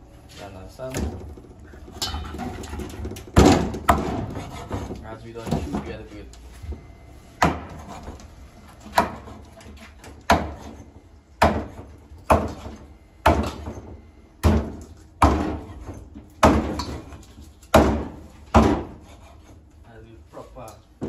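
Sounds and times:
machete chopping on wooden board: 3.4 - 4.9, 7.4 - 8.0, 8.8 - 10.8, 11.4 - 13.8, 14.4 - 15.8, 16.4 - 19.2.

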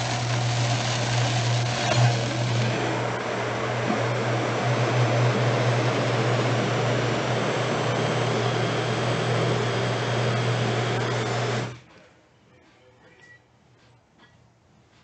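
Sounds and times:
blender motor running: 0.0 - 11.8.

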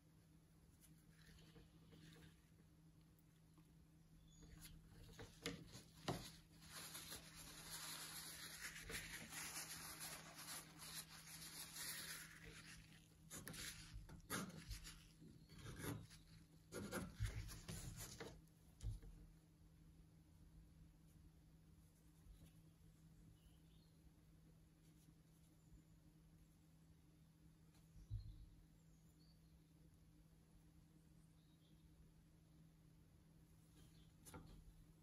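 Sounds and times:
paint brush strokes and dabs: 0.6 - 3.5, 4.2 - 19.1
cloth rag wiping brush: 5.1 - 15.1.

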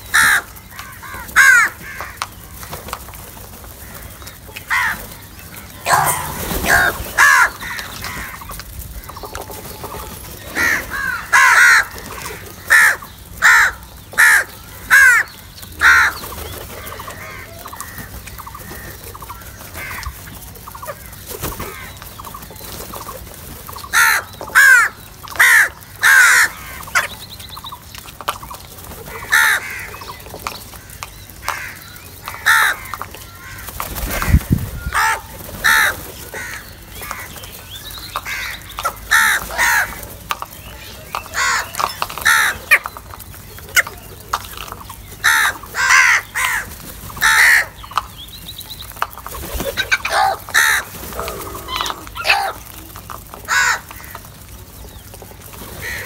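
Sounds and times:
crows cawing: 0.1 - 2.7, 3.7 - 22.0, 23.7 - 27.2, 29.1 - 37.4, 38.1 - 40.1, 41.2 - 43.0, 44.6 - 47.9, 49.7 - 54.3, 55.8 - 56.0.

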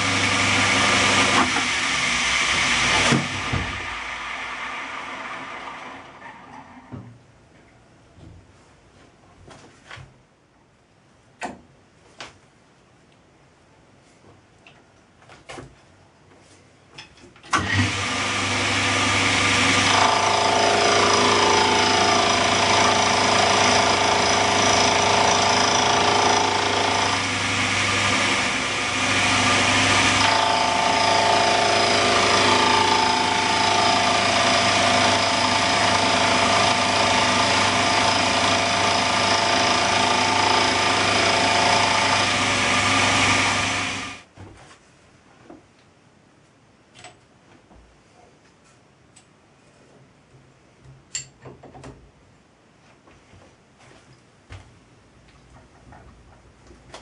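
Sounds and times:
milling machine motor hum: 0.0 - 6.2, 18.4 - 44.2.

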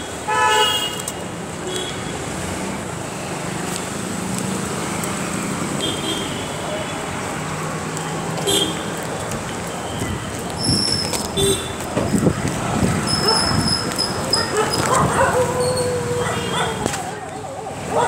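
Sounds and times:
city road traffic: 0.0 - 18.0
vehicle horn toots: 8.4 - 8.8.

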